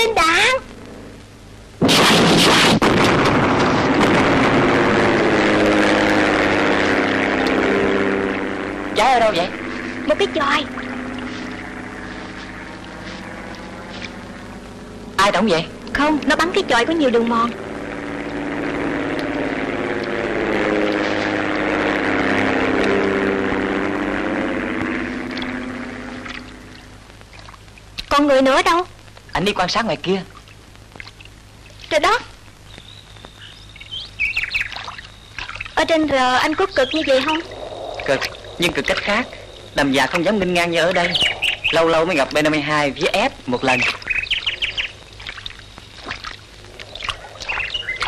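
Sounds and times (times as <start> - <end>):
broad rushing noise: 0.0 - 28.0, 30.6 - 48.0
propeller plane droning: 0.0 - 48.0
sharp cracks: 0.6 - 8.8.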